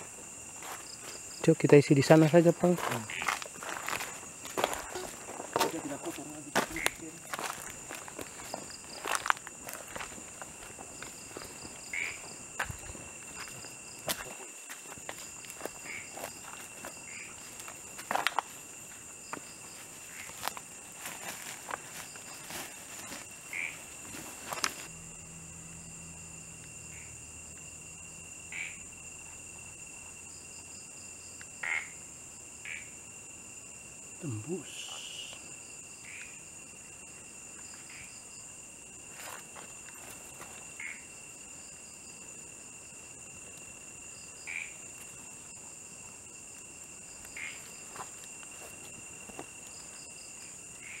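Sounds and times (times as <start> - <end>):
crickets trilling: 0.0 - 51.0
fast pulsing insect trill: 0.0 - 51.0
rustling through dry leaves: 19.7 - 24.9
low hum: 24.9 - 28.4.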